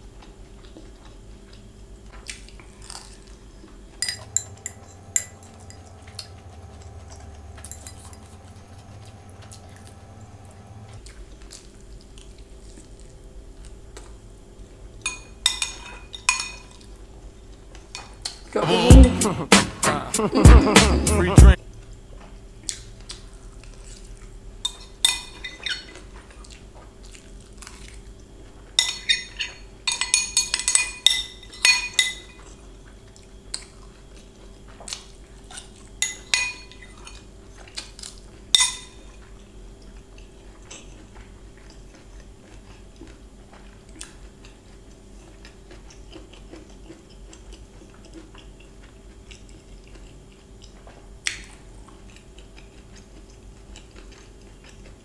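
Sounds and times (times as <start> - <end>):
chewing: 0.0 - 10.2, 10.9 - 14.2, 21.7 - 29.7, 31.5 - 55.0
spoon clinking on glass bowl: 4.0 - 5.9, 7.6 - 8.3.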